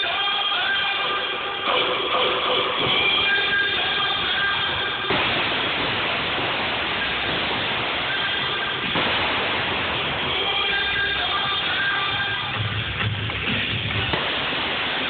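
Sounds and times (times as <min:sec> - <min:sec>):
music over loudspeakers: 0:00.0 - 0:15.0
loud even rushing noise: 0:03.0 - 0:15.0.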